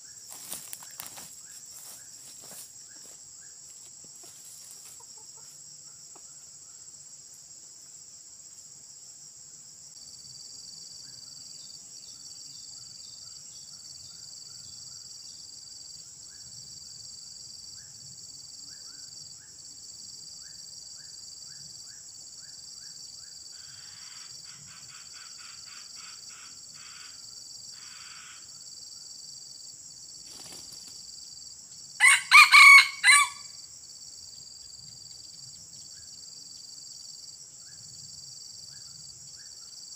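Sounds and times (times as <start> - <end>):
insects droning: 0.0 - 39.9
rooster crowing: 32.0 - 33.6.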